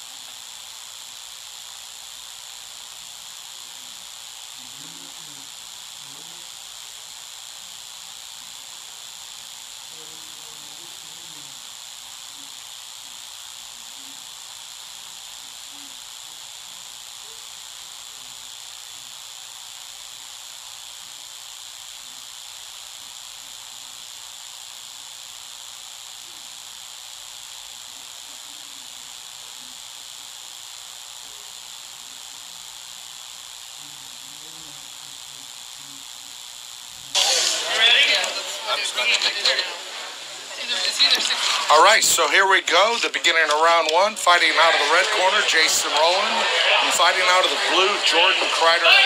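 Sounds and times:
high-pitched hiss: 0.0 - 49.0
faint murmur of crowd voices: 37.0 - 49.0.

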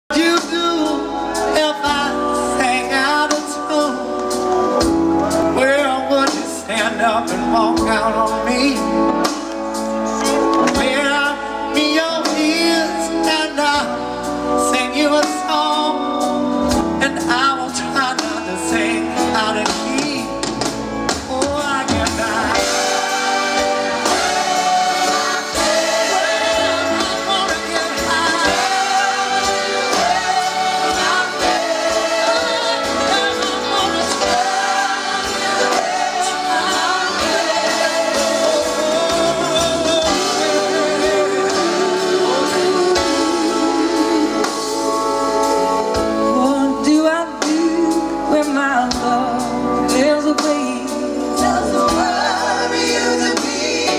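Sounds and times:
man singing lead: 0.1 - 4.3, 5.3 - 9.3, 10.0 - 53.9
live rock band: 0.1 - 53.9
backing singers: 21.2 - 45.1.

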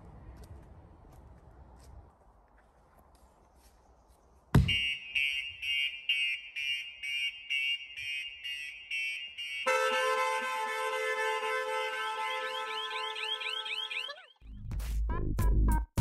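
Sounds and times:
sharp thump: 4.5 - 4.9
car alarm beeping and wailing: 4.6 - 14.4.

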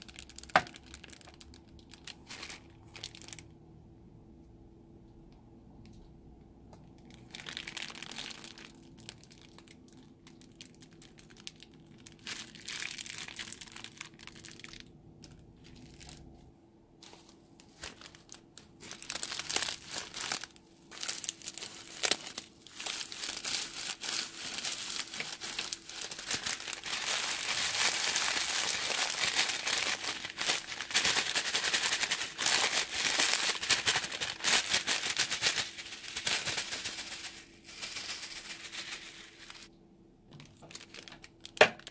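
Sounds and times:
plastic bag crinkling: 0.0 - 3.5, 6.9 - 16.4, 17.0 - 39.7, 40.3 - 41.9
foam beads pouring into bowl: 21.2 - 39.7.

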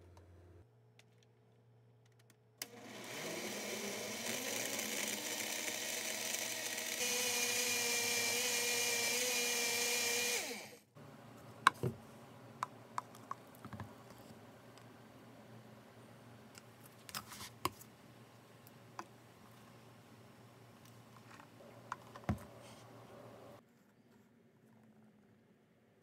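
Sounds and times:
blender motor running: 2.6 - 10.9.

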